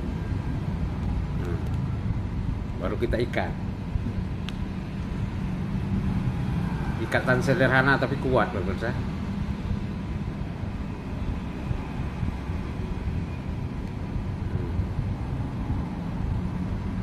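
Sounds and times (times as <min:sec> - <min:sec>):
faint hum: 0:08.5 - 0:17.0.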